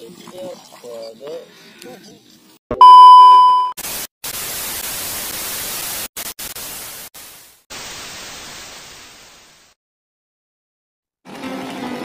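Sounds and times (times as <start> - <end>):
tv static hiss: 3.8 - 9.7.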